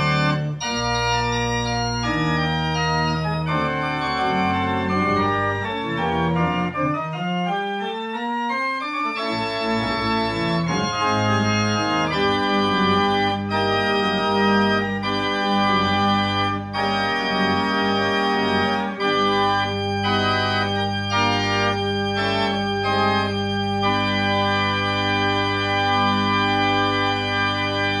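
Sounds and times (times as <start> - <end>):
church organ playing: 0.0 - 28.0.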